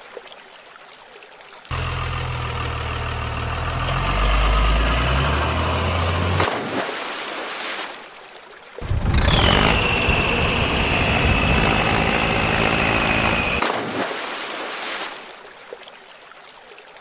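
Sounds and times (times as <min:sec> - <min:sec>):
tractor engine running: 0:01.7 - 0:06.6, 0:08.8 - 0:13.6
river water rushing: 0:01.7 - 0:15.8
steady high whine: 0:08.8 - 0:13.6.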